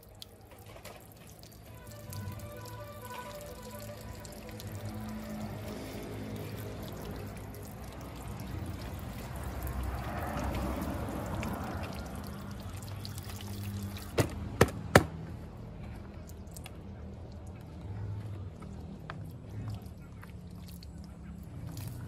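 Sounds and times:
water pouring onto plastic: 0.0s - 14.4s, 19.5s - 22.0s
sharp knocks: 14.2s - 15.2s.

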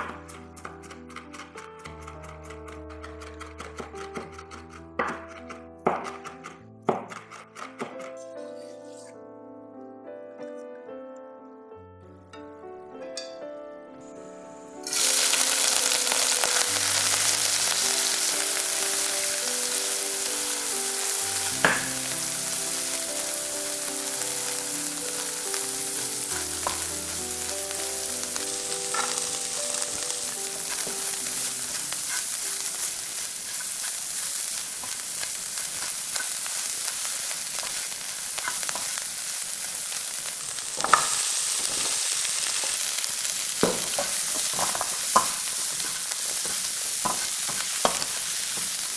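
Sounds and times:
spatula tapping pan: 0.0s - 8.0s, 14.9s - 39.6s, 40.2s - 48.9s
shrimp sizzling in hot oil: 14.7s - 48.9s.

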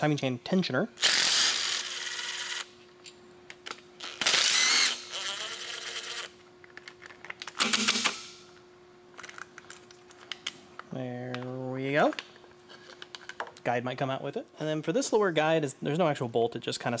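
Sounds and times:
cordless power driver running: 1.0s - 2.7s, 4.0s - 6.3s.

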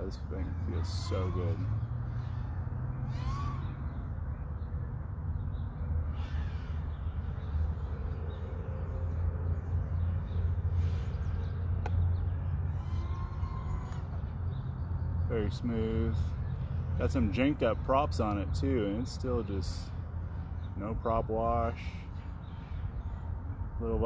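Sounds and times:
crows cawing: 0.4s - 4.0s, 6.0s - 7.9s, 10.7s - 14.6s.

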